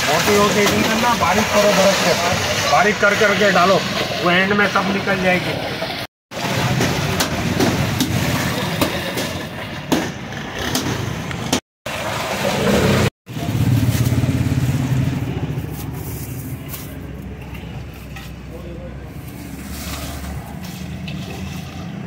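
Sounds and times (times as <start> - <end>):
vehicle engine running: 13.3 - 18.0.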